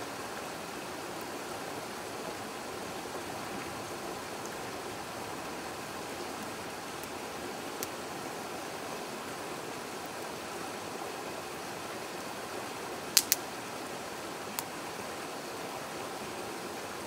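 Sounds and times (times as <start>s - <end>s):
river rushing: 0.0s - 17.0s
fire crackling and popping: 5.3s - 8.0s, 13.1s - 13.4s.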